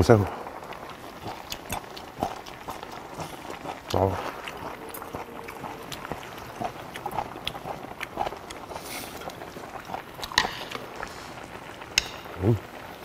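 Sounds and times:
man chewing: 0:00.5 - 0:13.0
small wet mouth clicks: 0:00.8 - 0:07.8.

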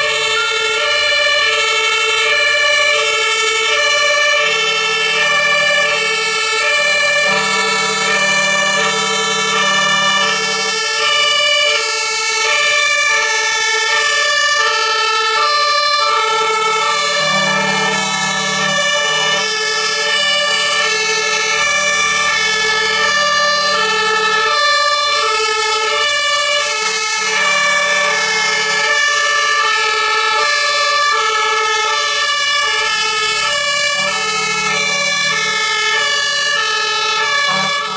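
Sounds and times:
truck engine noise: 0:00.0 - 0:37.9
two-tone fire engine sirens: 0:00.0 - 0:37.9.

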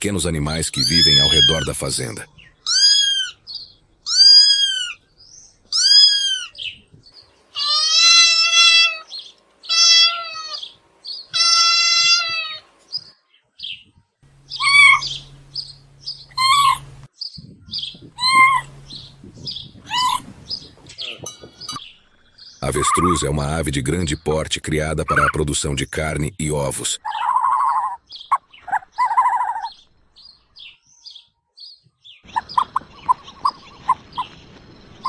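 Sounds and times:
cats meowing: 0:00.8 - 0:01.8, 0:02.6 - 0:03.4, 0:04.1 - 0:05.0, 0:05.7 - 0:06.7, 0:07.6 - 0:12.7, 0:14.5 - 0:15.2, 0:16.3 - 0:16.9, 0:18.1 - 0:18.8, 0:19.5 - 0:20.2.

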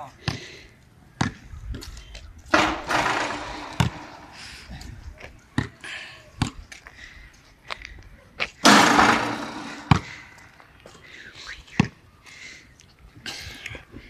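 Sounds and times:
basketball bouncing on concrete: 0:01.2 - 0:01.4, 0:02.5 - 0:04.4, 0:08.6 - 0:10.2.

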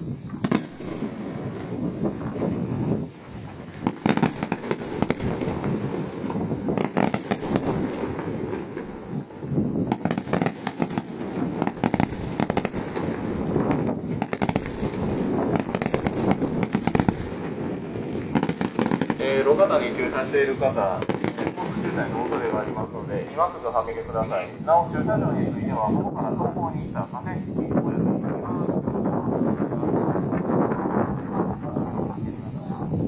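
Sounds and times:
sharp crackling pops: 0:00.0 - 0:24.9
fireworks shells bursting: 0:00.2 - 0:24.8
rumble of bangs and echoes: 0:00.5 - 0:24.2.

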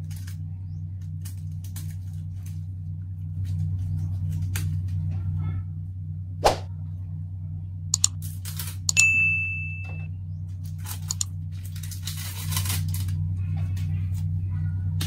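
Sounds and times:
steady low hum: 0:00.0 - 0:15.0
mouse clicks: 0:08.0 - 0:08.2, 0:11.1 - 0:11.3
bell-like ding: 0:08.9 - 0:10.1.

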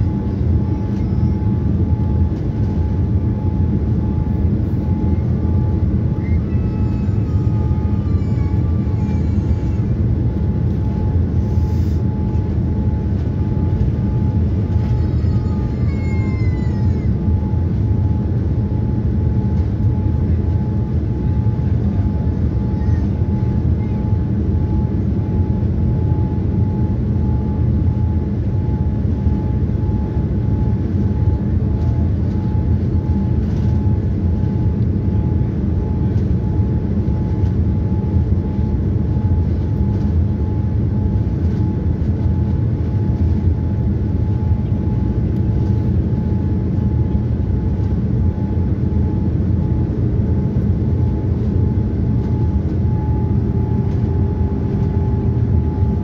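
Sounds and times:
airplane cabin roar: 0:00.0 - 0:56.0
thin steady whine: 0:00.0 - 0:56.0.

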